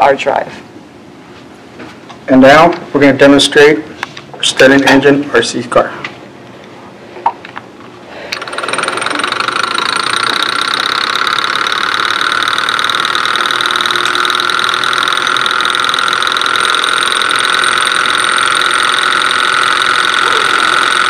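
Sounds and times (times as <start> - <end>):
small engine whirring with rattle: 8.3 - 21.0.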